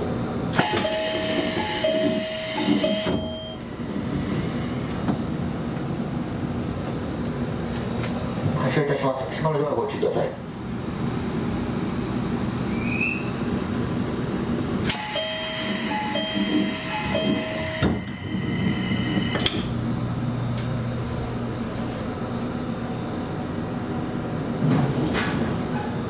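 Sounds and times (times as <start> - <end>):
train running noise: 0.0 - 26.0
two-note falling door chime: 0.6 - 3.7.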